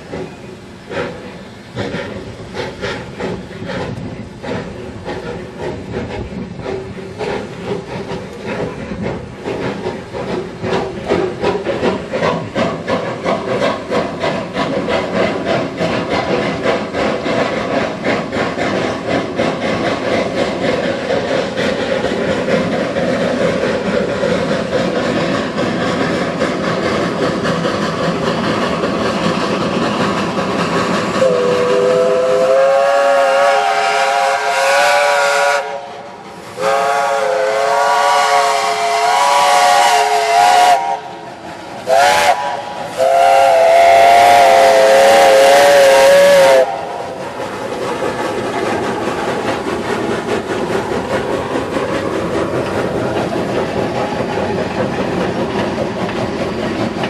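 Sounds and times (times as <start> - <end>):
steam train passing: 0.0 - 57.0
steam locomotive whistle blasts: 31.2 - 41.1, 41.9 - 47.0.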